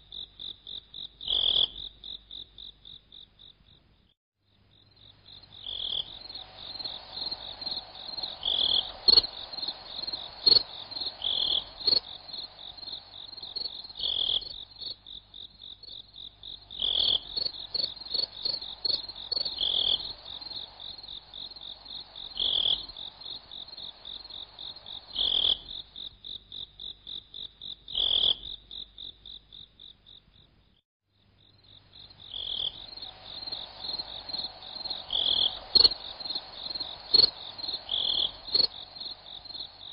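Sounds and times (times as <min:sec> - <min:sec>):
insects trilling: 0:04.7 - 0:30.5, 0:31.4 - 0:39.9
frog-like call: 0:05.6 - 0:15.0, 0:16.7 - 0:21.2, 0:21.9 - 0:26.0, 0:27.9 - 0:28.6, 0:32.3 - 0:39.8.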